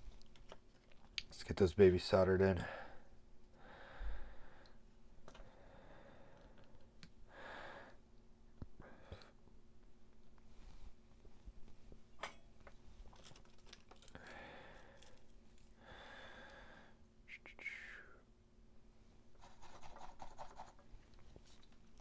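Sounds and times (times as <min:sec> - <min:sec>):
person breathing: 0:02.6 - 0:04.8, 0:05.4 - 0:08.0, 0:08.8 - 0:09.4, 0:14.0 - 0:17.0
soft rustles: 0:10.3 - 0:12.0.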